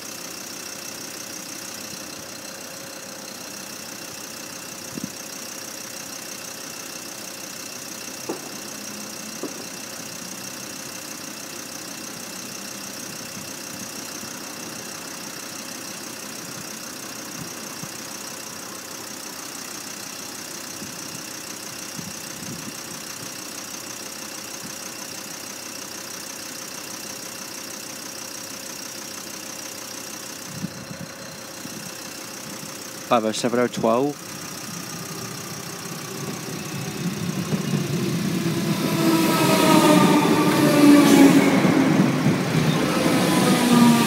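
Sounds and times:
high even whine: 28.8s - 44.0s
steady mechanical hum: 29.6s - 44.0s.

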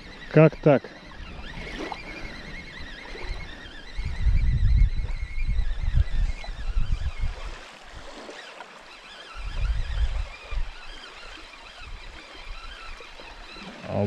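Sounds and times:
wind buffeting microphone: 1.0s - 8.2s, 9.3s - 14.0s
waves washing on shore: 7.3s - 14.0s.

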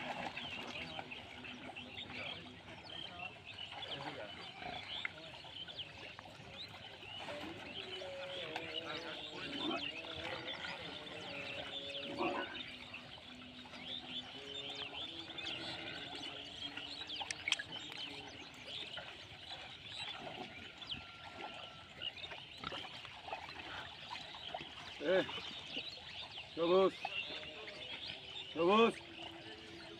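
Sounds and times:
pigs grunting and snuffling: 9.3s - 12.6s.

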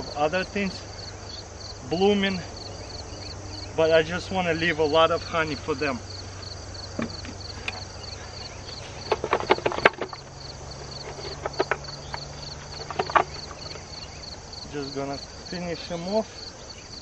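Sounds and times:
bees humming: 0.0s - 17.0s
crickets chirping: 0.0s - 17.0s
wooden frames knocking and scraping: 6.4s - 15.1s.

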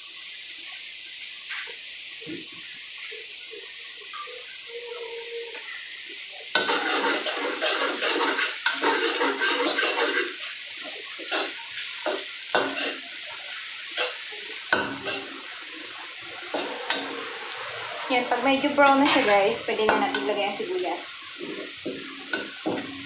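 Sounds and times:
garlic sizzling in oil: 0.0s - 23.0s
spatula scraping a pan: 6.6s - 20.6s, 21.3s - 23.0s.

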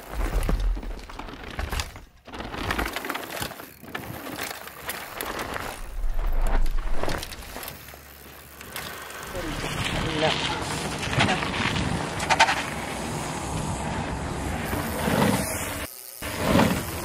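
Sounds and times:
bike clicks and rattles: 0.0s - 13.6s, 14.6s - 17.0s
bike tyres crunching over dirt: 0.0s - 17.0s
low rumble: 5.8s - 7.3s.

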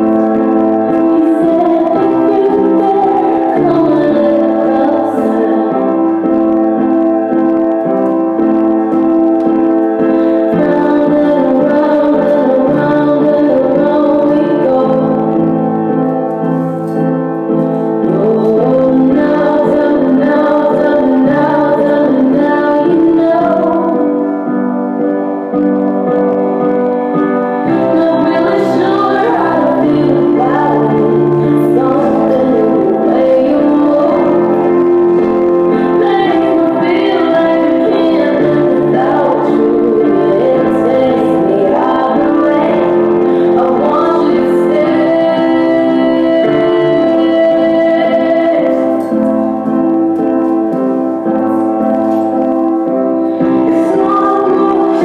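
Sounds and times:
woman singing: 0.0s - 6.7s, 10.1s - 16.0s, 18.0s - 24.5s, 27.6s - 49.8s, 53.2s - 55.0s
sustained instrumental backing: 0.0s - 55.0s.

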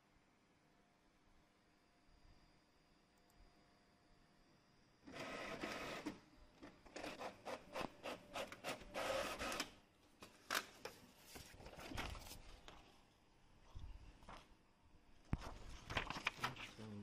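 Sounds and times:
inkjet printer printing: 5.0s - 6.2s, 6.9s - 9.8s.

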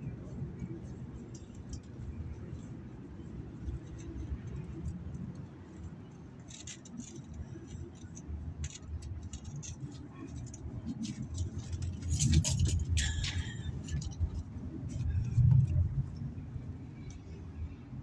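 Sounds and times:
low rumble: 10.6s - 18.0s.

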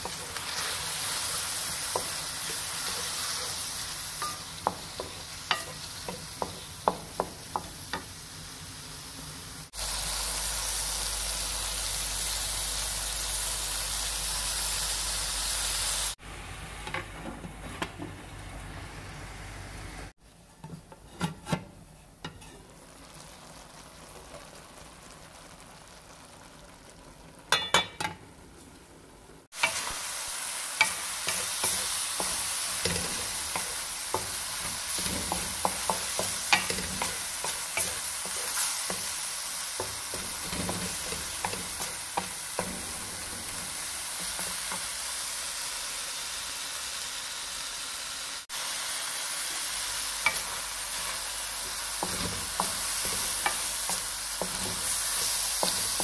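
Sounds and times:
vegetables sizzling in oil: 0.0s - 17.0s, 18.1s - 56.0s
wooden spatula scraping pot: 20.6s - 22.8s.

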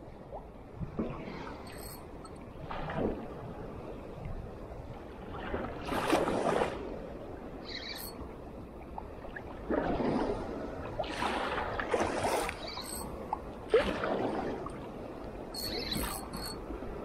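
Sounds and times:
small waves washing: 0.0s - 17.0s
high squeak: 1.7s - 2.0s, 7.7s - 8.2s, 12.6s - 13.1s, 15.6s - 16.6s.

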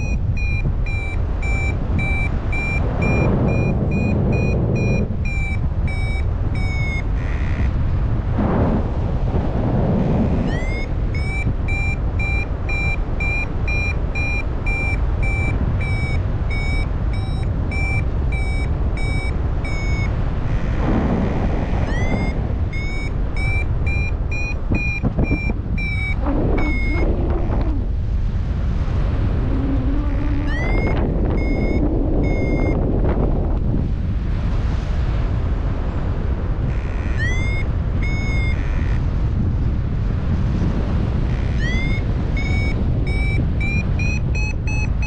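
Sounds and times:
variometer short high beeps: 0.0s - 7.7s, 10.4s - 27.5s, 29.9s - 32.8s, 36.7s - 39.0s, 41.3s - 45.0s
wind noise: 0.0s - 45.0s.

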